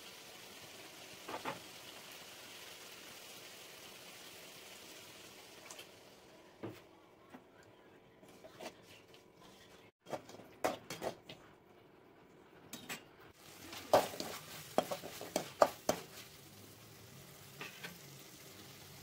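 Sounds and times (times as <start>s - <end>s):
food sizzling: 0.0s - 6.4s, 13.3s - 19.0s
metal spatula scraping a pan: 13.5s - 16.4s, 17.5s - 18.1s.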